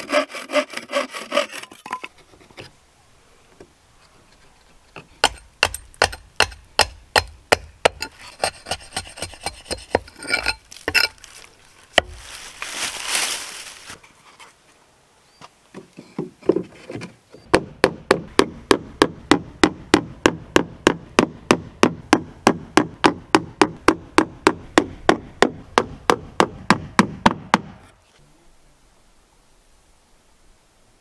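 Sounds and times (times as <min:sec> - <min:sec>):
hammer striking wood: 0:05.2 - 0:08.0, 0:17.5 - 0:27.8.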